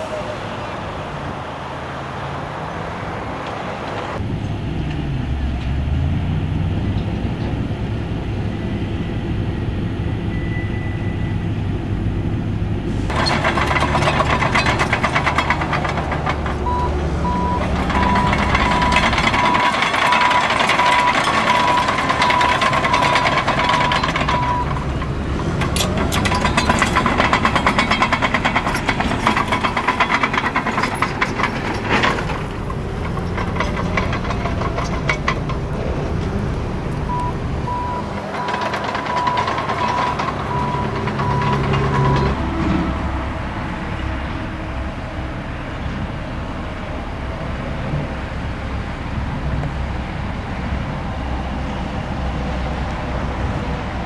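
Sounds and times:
heavy diesel engine running: 0:06.4 - 0:54.0
steel tracks clattering: 0:13.0 - 0:42.9.

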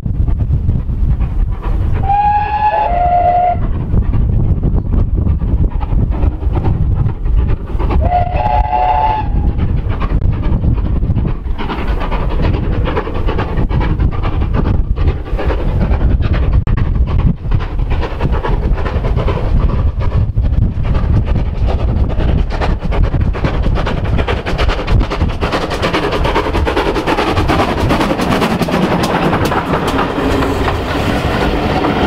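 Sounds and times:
steam locomotive exhaust beating: 0:00.0 - 0:32.0
steam whistle blast: 0:02.0 - 0:03.6, 0:08.0 - 0:09.4.

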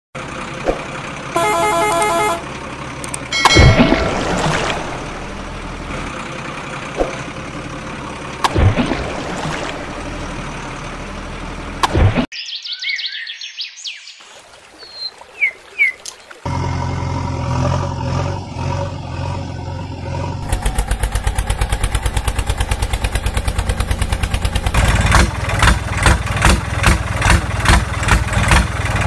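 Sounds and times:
truck engine rumble: 0:00.2 - 0:12.3, 0:16.3 - 0:29.0
truck horn: 0:01.2 - 0:02.8.

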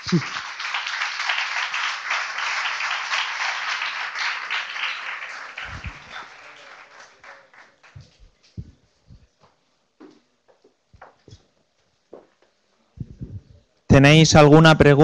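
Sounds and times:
audience applauding: 0:00.0 - 0:08.8
short low thumps: 0:08.0 - 0:09.3, 0:13.0 - 0:13.6.

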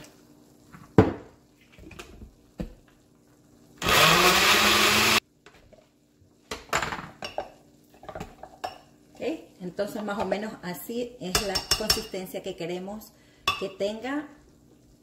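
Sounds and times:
countertop blender running: 0:03.8 - 0:05.2.

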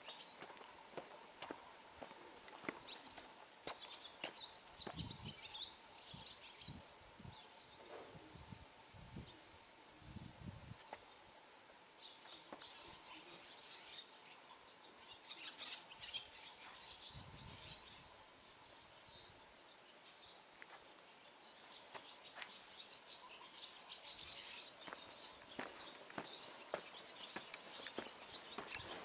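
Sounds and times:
footsteps on stone paving: 0:00.0 - 0:05.1, 0:21.7 - 0:22.6, 0:24.8 - 0:29.0
faint bird chirps: 0:12.0 - 0:29.0.

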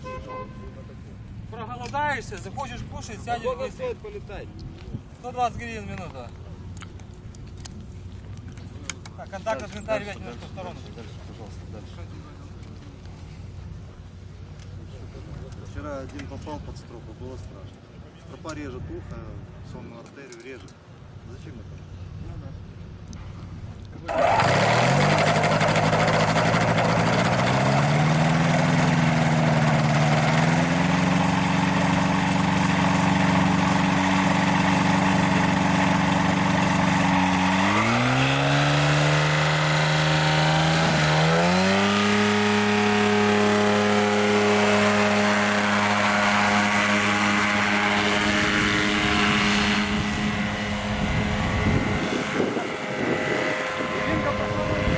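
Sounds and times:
paramotor engine and propeller revving: 0:24.0 - 0:54.9.

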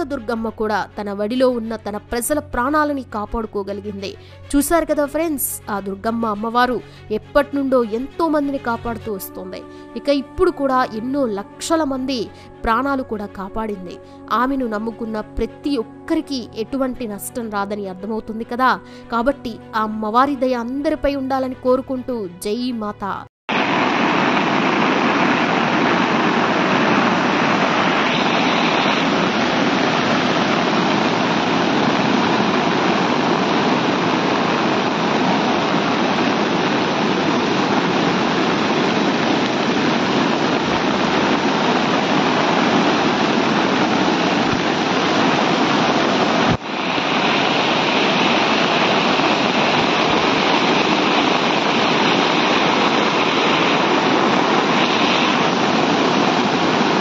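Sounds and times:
floodwater rushing through rapids: 0:23.5 - 0:57.0.

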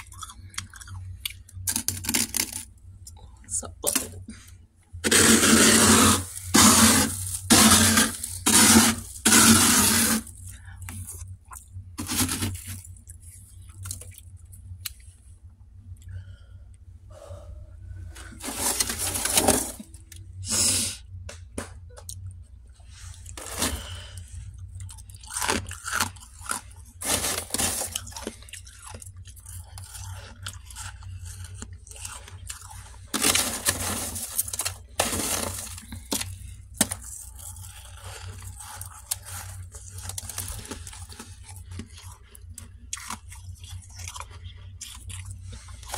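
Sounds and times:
frost being crunched and chewed: 0:00.0 - 0:03.2, 0:05.0 - 0:15.1, 0:23.1 - 0:45.9
steady low hum: 0:00.0 - 0:45.9
hand scraping frost: 0:05.0 - 0:10.4, 0:12.0 - 0:12.8, 0:18.2 - 0:19.9, 0:23.0 - 0:24.1, 0:27.0 - 0:28.0, 0:33.1 - 0:35.9.

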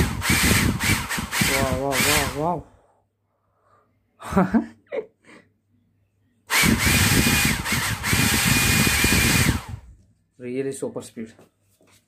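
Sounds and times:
hair dryer motor whine: 0:00.0 - 0:02.6, 0:06.5 - 0:09.8.

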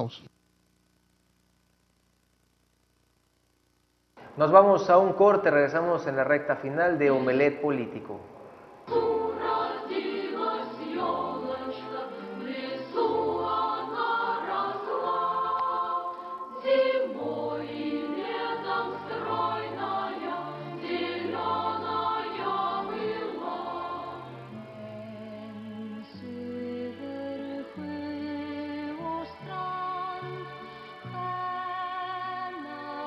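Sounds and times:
choir singing a carol: 0:06.7 - 0:08.0, 0:08.8 - 0:33.0.

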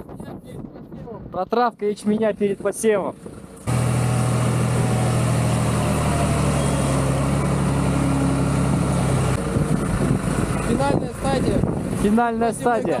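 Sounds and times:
diesel engine running: 0:03.2 - 0:12.9
rough engine noise: 0:03.2 - 0:13.0.

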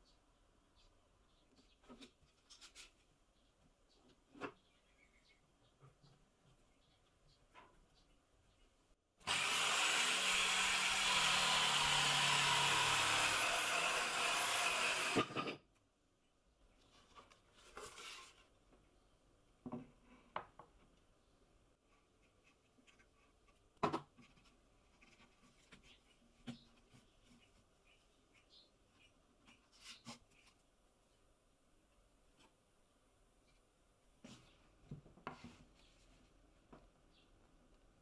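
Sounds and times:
circular saw cutting a board: 0:09.2 - 0:15.6.

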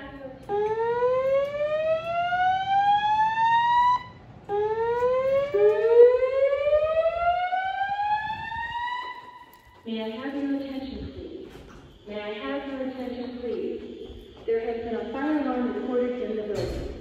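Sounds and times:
fire alarm whoop tone: 0:00.5 - 0:09.8.

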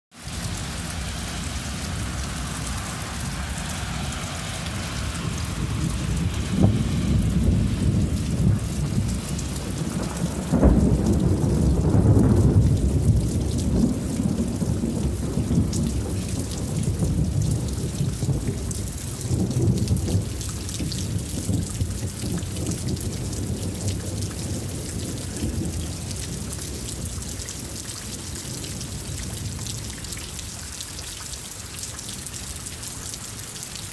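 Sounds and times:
rain hissing: 0:00.1 - 0:33.9
thunder rumbling: 0:00.2 - 0:30.2
sharp thunder crack: 0:00.8 - 0:18.6.

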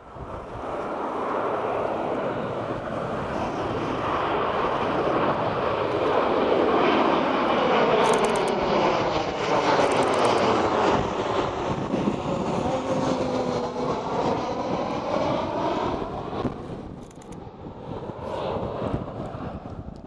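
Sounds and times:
jet airliner passing overhead: 0:00.0 - 0:20.0.

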